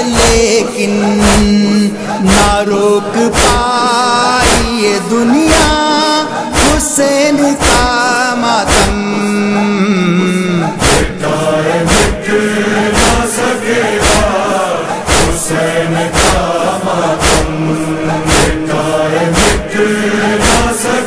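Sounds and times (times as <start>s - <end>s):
chorus chanting long notes: 0.0s - 21.0s
chest-beating slaps: 1.2s - 1.6s, 2.3s - 2.6s, 3.3s - 3.7s, 4.4s - 4.8s, 5.4s - 5.9s, 6.5s - 8.0s, 8.6s - 9.0s, 10.8s - 11.2s, 11.8s - 21.0s.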